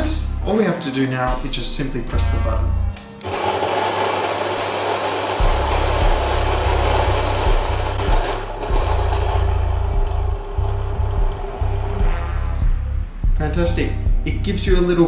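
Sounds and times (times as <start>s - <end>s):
coffee grinder whirring: 3.2s - 12.1s.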